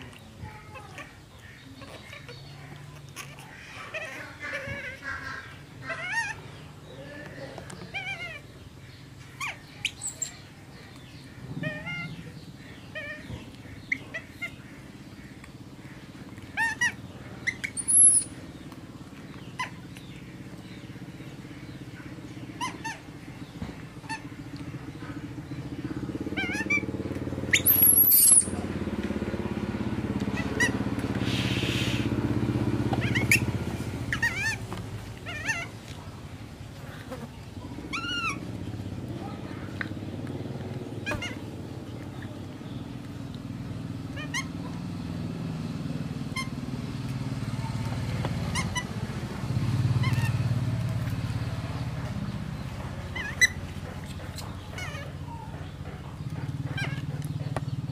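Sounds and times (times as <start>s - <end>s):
shrill monkey squeals: 5.8s - 6.4s, 9.4s - 10.4s, 16.6s - 18.3s, 27.5s - 28.6s, 33.0s - 33.4s, 34.1s - 34.6s, 44.2s - 44.6s, 53.1s - 53.6s
baby monkey squeaks and chirps: 9.3s - 10.5s, 16.6s - 18.4s, 27.5s - 28.6s, 33.0s - 34.6s, 37.9s - 38.4s, 48.5s - 48.9s, 53.1s - 55.6s.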